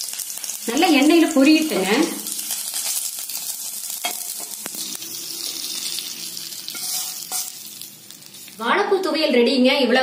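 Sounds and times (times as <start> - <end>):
spices sizzling in hot oil: 0.0 - 9.4.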